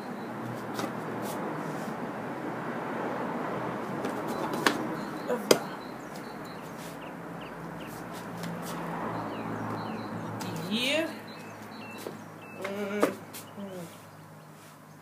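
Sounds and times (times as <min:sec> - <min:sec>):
faint bird chirps: 0:04.3 - 0:08.0.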